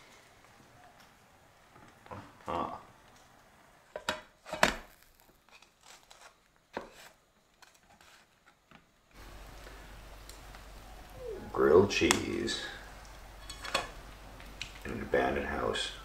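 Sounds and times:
low steady hum: 0:09.1 - 0:16.0
spatula scraping frying pan: 0:13.3 - 0:14.0.

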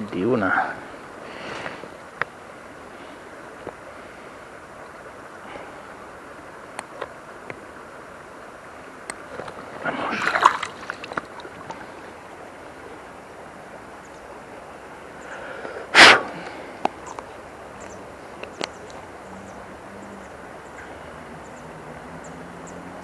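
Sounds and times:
river current rushing: 0:00.0 - 0:23.0
faint clicks: 0:16.4 - 0:19.1.

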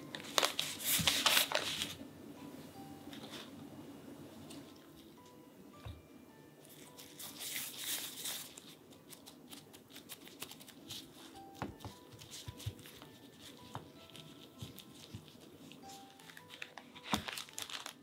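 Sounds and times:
disposable gloves rustling: 0:00.0 - 0:02.0, 0:06.6 - 0:18.0.

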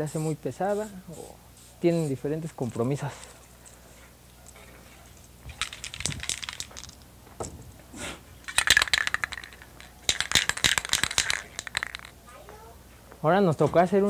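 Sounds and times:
spray can ball rattling: 0:05.5 - 0:07.1, 0:08.5 - 0:12.2.

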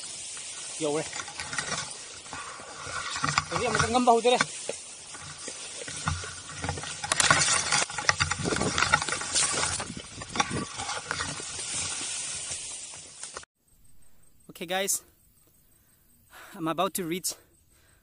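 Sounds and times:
footsteps crunching on dry trail: 0:00.0 - 0:13.4.

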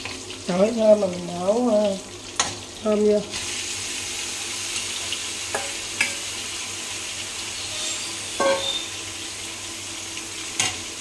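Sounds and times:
food sizzling in oil: 0:00.0 - 0:11.0
utensil clinking against pot: 0:08.4 - 0:08.9.

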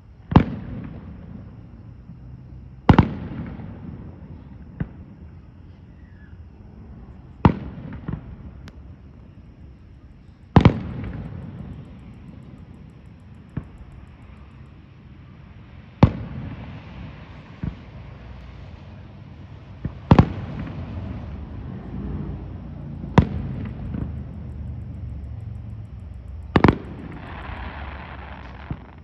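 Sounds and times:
firework booms with rolling echo: 0:00.2 - 0:01.6, 0:02.8 - 0:05.3, 0:07.4 - 0:09.0, 0:10.5 - 0:11.9, 0:16.0 - 0:18.3, 0:19.4 - 0:22.0, 0:23.0 - 0:24.5, 0:26.5 - 0:29.0
small firework pops: 0:00.3 - 0:01.2, 0:02.9 - 0:03.7, 0:07.4 - 0:08.9, 0:10.5 - 0:11.4, 0:17.5 - 0:18.6, 0:19.8 - 0:20.9, 0:23.1 - 0:24.2, 0:26.5 - 0:29.0.

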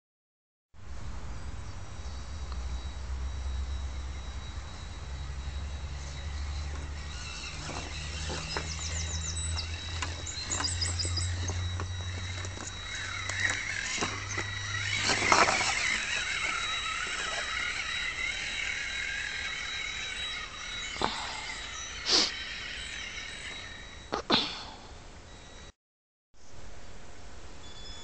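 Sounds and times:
electric motor and gear whine: 0:02.0 - 0:24.2.

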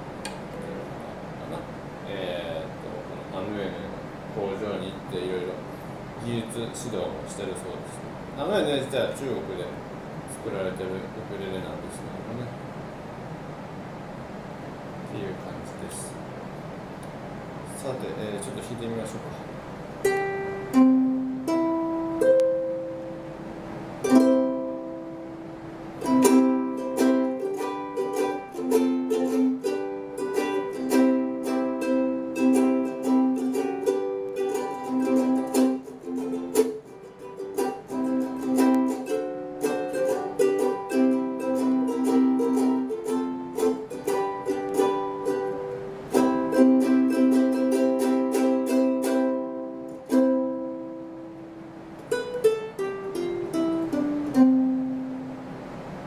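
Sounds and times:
ukulele plucked notes and chords: 0:20.0 - 0:56.0.

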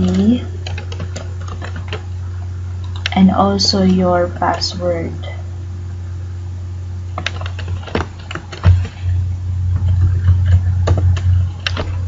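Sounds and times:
computer keyboard keys clicking: 0:00.0 - 0:02.1, 0:02.8 - 0:03.2, 0:07.2 - 0:08.8
steady low hum: 0:00.0 - 0:12.0.

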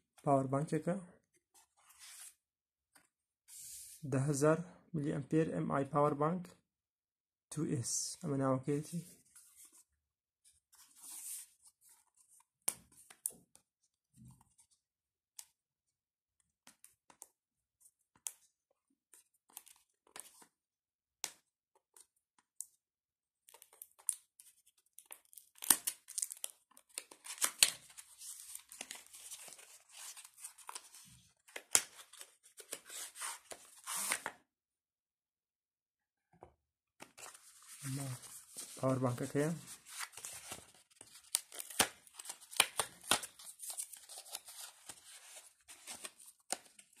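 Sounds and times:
wrapping tearing and crinkling: 0:25.1 - 0:30.9.

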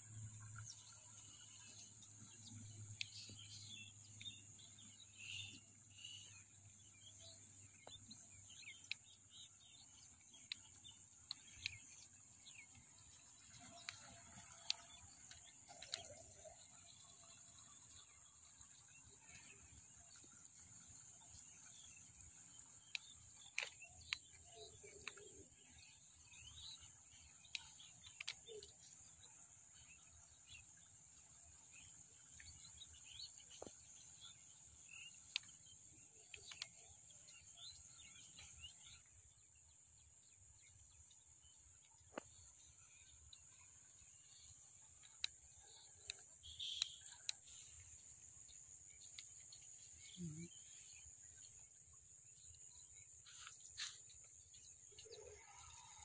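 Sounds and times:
bird chirps: 0:40.3 - 0:56.0.

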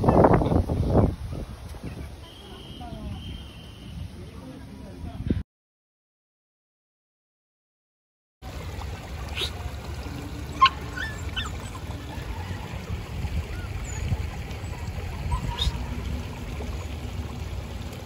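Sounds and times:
water trickling over cascade: 0:08.4 - 0:18.0.

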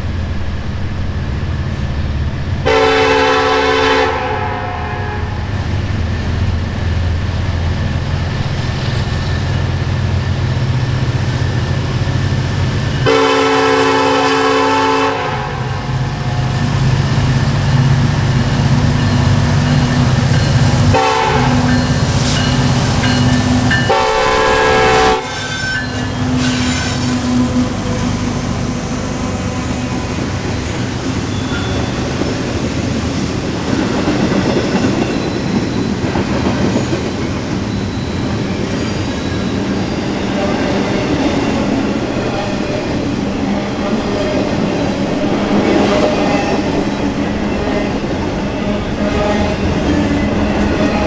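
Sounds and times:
diesel locomotive rumble: 0:00.0 - 0:51.0
train air horn blasts: 0:02.6 - 0:05.4, 0:13.0 - 0:15.8, 0:20.9 - 0:21.8, 0:23.9 - 0:30.1.

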